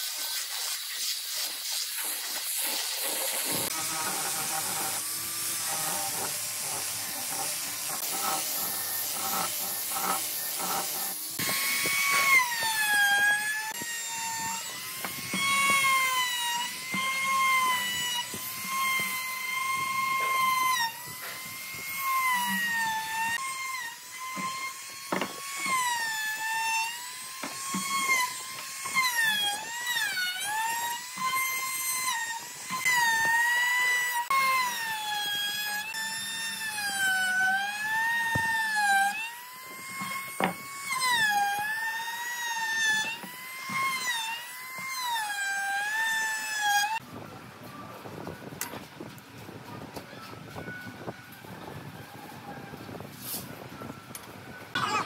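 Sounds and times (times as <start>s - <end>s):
sanding drum on wood: 0.0s - 23.3s
router whining cutting wood: 2.0s - 47.0s, 53.6s - 55.0s.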